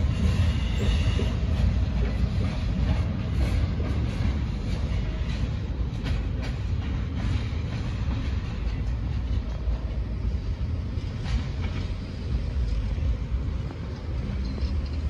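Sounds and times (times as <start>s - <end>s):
freight train cars rumbling: 0.0s - 15.0s
wheels clicking over rail joints: 0.0s - 15.0s.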